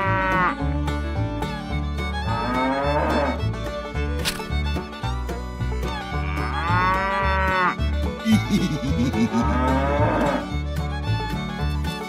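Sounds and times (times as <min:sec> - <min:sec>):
cow mooing: 0:00.0 - 0:00.6, 0:02.2 - 0:03.4, 0:06.1 - 0:07.8, 0:09.2 - 0:10.5.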